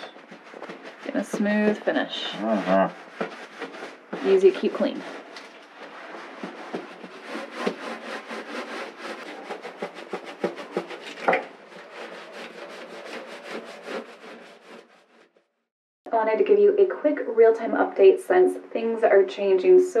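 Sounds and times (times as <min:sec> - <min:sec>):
paint roller sticky rubbing: 0:00.0 - 0:15.3.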